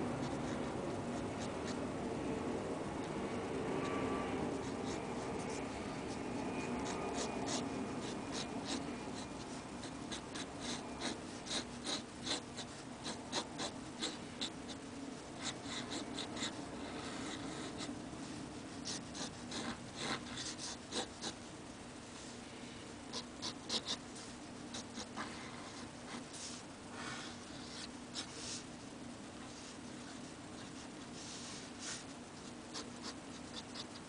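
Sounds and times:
pen nib scratching paper: 0:03.8 - 0:14.8, 0:15.4 - 0:18.0, 0:18.6 - 0:21.4, 0:23.1 - 0:26.6, 0:30.0 - 0:34.0.

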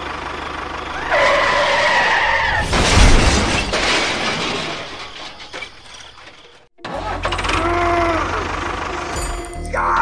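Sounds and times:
vehicle skidding: 0:00.9 - 0:03.7
rough motor running: 0:06.8 - 0:09.2.

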